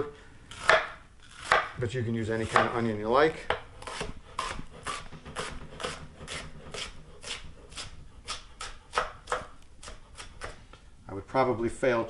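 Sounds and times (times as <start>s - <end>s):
knife chopping on wooden board: 0.6s - 1.8s, 2.4s - 10.6s.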